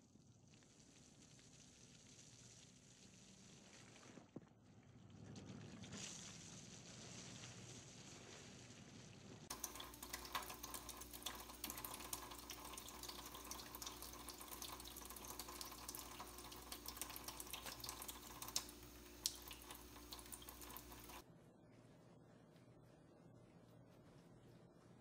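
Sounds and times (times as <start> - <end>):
faucet water trickling into sink: 9.5 - 21.2.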